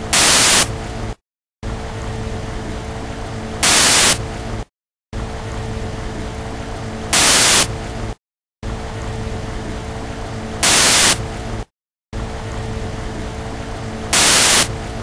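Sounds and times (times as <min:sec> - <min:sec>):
loud hiss bursts: 0:00.0 - 0:00.7, 0:03.6 - 0:04.2, 0:07.1 - 0:07.7, 0:10.6 - 0:11.2, 0:14.1 - 0:14.7
steady hum: 0:00.0 - 0:15.0.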